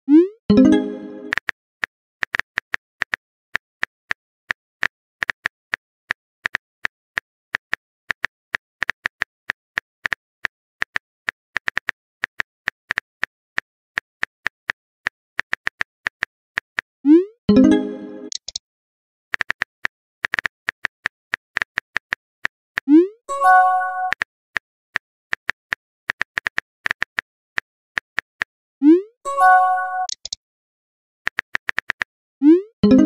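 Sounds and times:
phone keyboard typing clicks: 18.2 - 18.6, 30.0 - 30.4.

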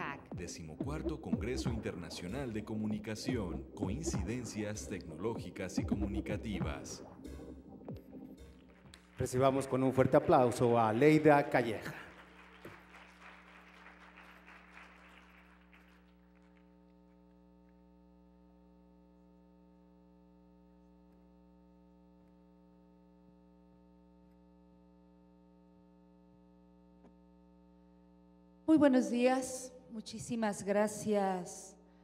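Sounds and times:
faint audience applause: 8.7 - 16.9.

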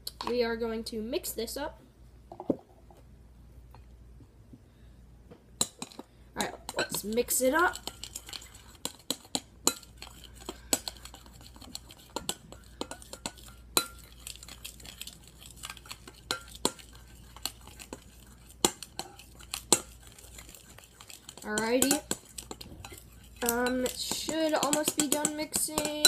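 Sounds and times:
spoon stirring thick foam: 5.7 - 26.0
spoon clinking against glass bowl: 22.8 - 26.0.

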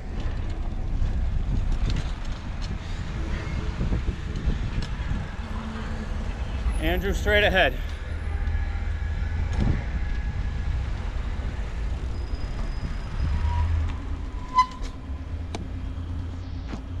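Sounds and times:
wind on microphone: 0.0 - 6.7, 8.7 - 16.3
traffic rumble: 0.0 - 17.0.

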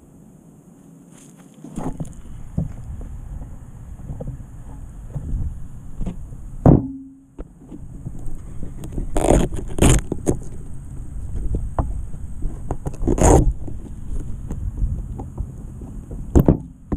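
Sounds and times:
propeller noise: 1.6 - 16.9
wind buffeting: 1.7 - 6.7, 7.6 - 16.9.

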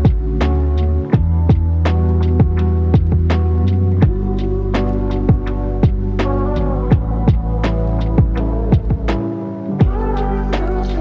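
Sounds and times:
slow electronic music: 0.0 - 11.0
deep drum hits: 1.2 - 3.4, 5.3 - 6.3, 6.9 - 10.1.

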